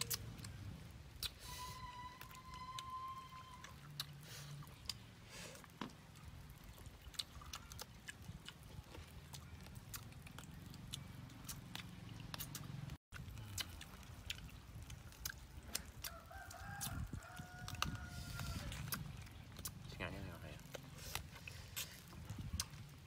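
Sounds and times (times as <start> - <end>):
wet mouth clicks and lip smacks: 0.0 - 1.4, 6.2 - 16.2, 20.6 - 23.0
people chewing: 0.0 - 23.0.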